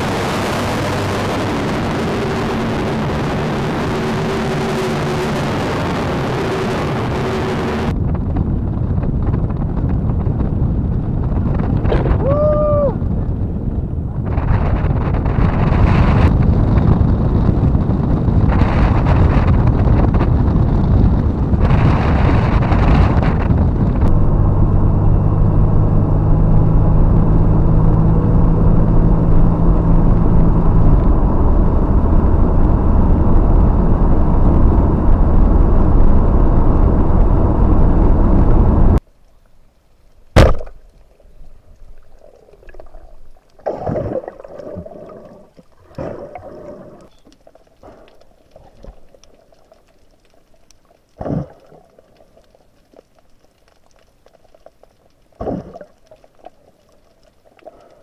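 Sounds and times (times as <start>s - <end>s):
road and wind noise: 0.0s - 39.1s
quiet underwater sounds: 8.6s - 24.2s, 29.3s - 58.0s
low car engine hum: 22.5s - 39.1s
gurgling bubble bursts: 41.8s - 52.6s, 55.4s - 56.9s.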